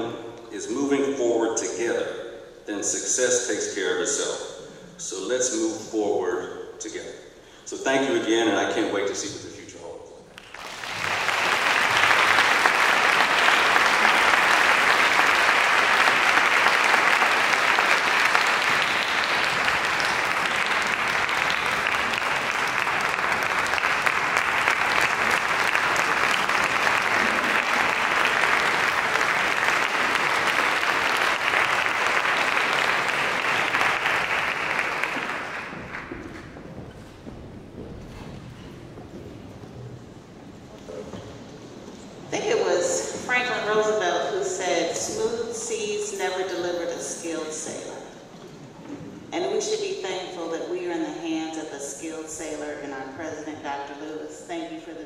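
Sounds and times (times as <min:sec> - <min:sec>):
audience applauding: 0:10.3 - 0:41.7.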